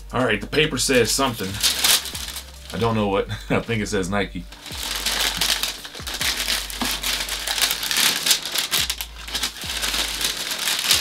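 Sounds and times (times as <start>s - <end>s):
wrapping paper crinkling: 0.9s - 3.0s, 4.4s - 11.0s.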